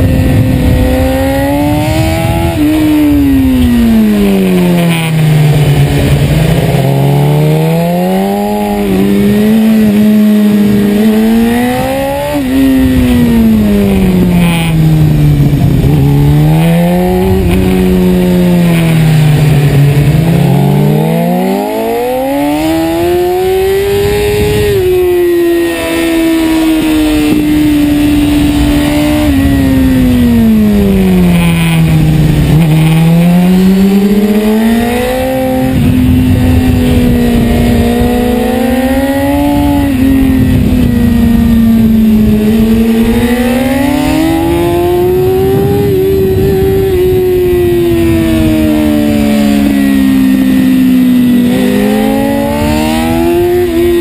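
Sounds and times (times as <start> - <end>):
motorcycle engine revving: 0.0 - 54.0
wind rushing: 0.0 - 54.0.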